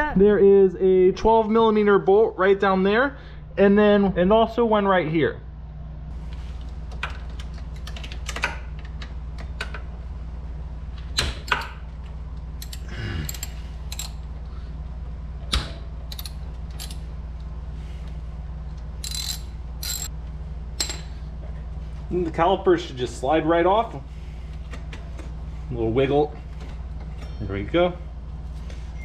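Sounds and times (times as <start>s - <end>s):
steady low hum: 0.0s - 29.0s
hand ratchet clicking: 12.6s - 14.2s, 16.1s - 17.0s, 19.0s - 20.1s
metal tools tapping: 19.0s - 20.1s.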